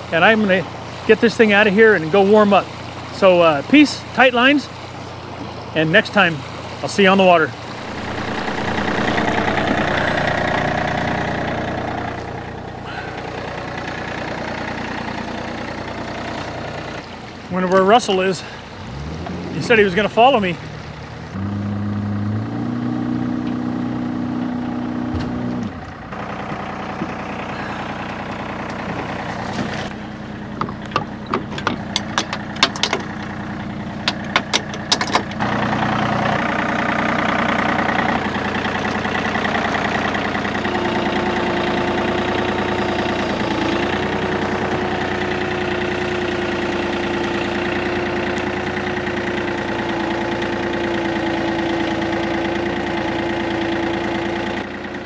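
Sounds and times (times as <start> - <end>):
tractor engine idling: 0.0 - 18.8, 25.8 - 55.0
engine idling: 0.0 - 19.0, 24.6 - 55.0
steady whining tone: 7.3 - 17.1.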